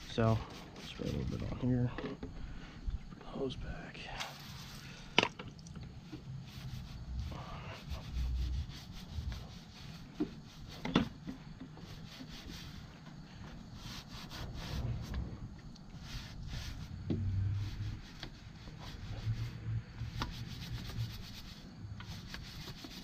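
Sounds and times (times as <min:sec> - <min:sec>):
hose rubbing and scraping: 0:00.0 - 0:01.9, 0:04.3 - 0:04.9, 0:06.0 - 0:23.0
low rumble: 0:05.9 - 0:09.6, 0:14.1 - 0:20.1.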